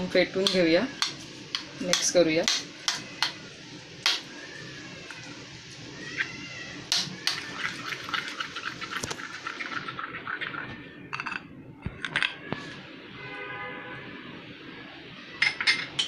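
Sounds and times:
eggs sloshing in bowl: 7.3 - 10.6.

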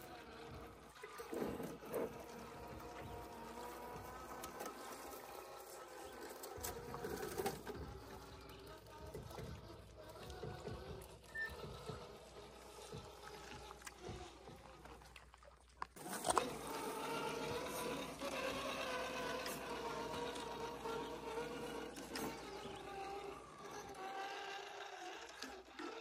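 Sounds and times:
electric motor and gears whining: 0.0 - 26.0.

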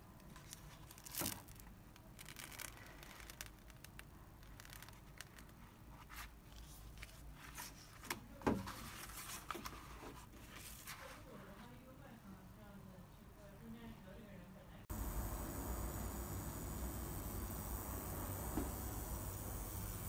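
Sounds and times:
plastic film crackles: 0.2 - 8.0
plastic film rustling and crinkling: 0.2 - 11.9.

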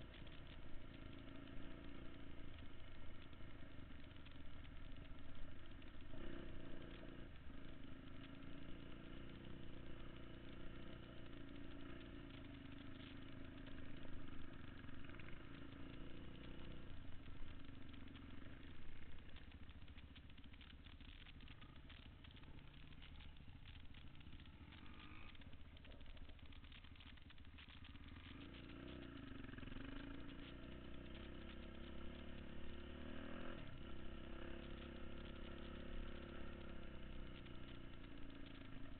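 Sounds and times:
dirt bike engine revving: 6.1 - 9.4.

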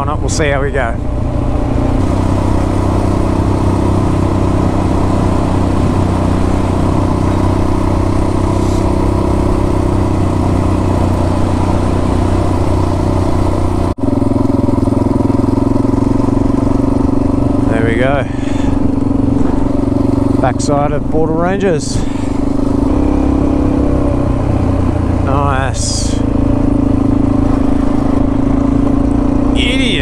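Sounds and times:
motorcycle engine cruising: 0.0 - 30.0
road and wind noise: 0.0 - 30.0.

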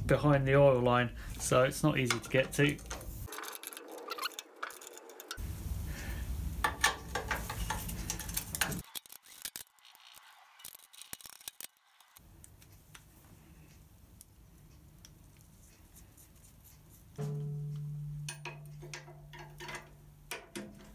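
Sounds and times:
metal tools clinking: 2.0 - 5.4, 18.2 - 20.9.

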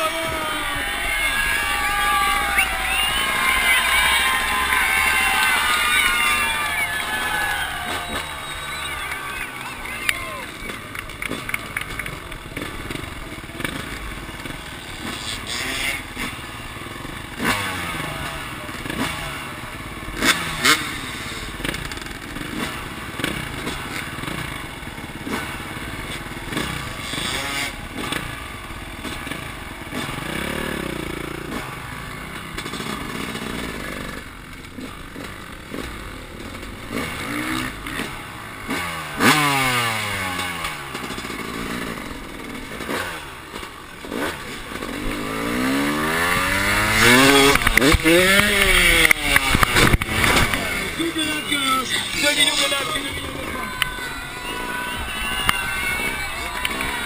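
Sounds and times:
dirt bike engine revving: 0.0 - 57.0
knocks and clatter from bike: 10.7 - 14.6, 32.3 - 38.2, 47.0 - 50.7.

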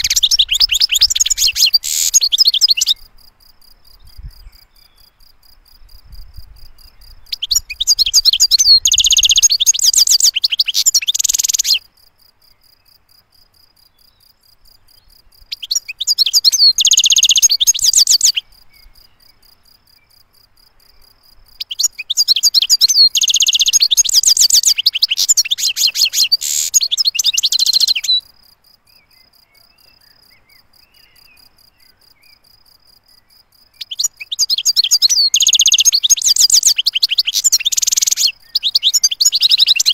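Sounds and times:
goldfinch twittering song: 0.0 - 3.1, 6.6 - 11.8, 15.0 - 19.4, 21.6 - 28.2, 33.8 - 39.9.

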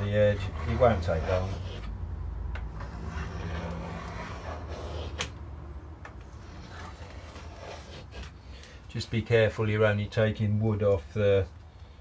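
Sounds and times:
hand plane scraping wood: 0.0 - 2.0, 2.7 - 5.4, 6.2 - 8.4.

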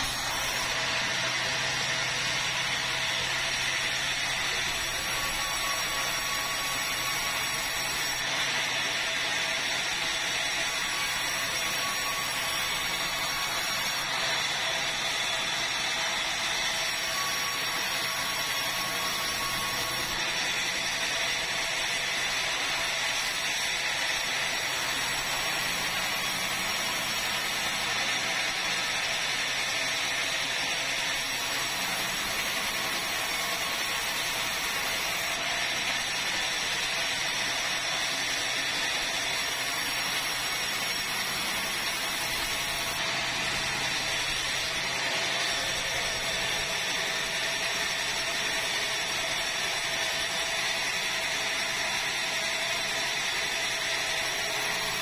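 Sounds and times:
band saw cutting timber: 0.0 - 55.0.

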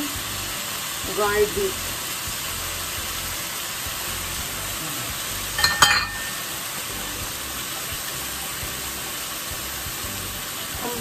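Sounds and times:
food sizzling in oil: 0.0 - 11.0
sharp ringing clinks: 5.6 - 6.5.

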